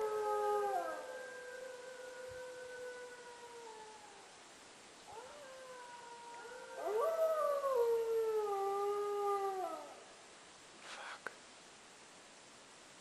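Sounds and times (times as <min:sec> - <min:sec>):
wolves howling: 0:00.0 - 0:04.4, 0:05.1 - 0:10.1.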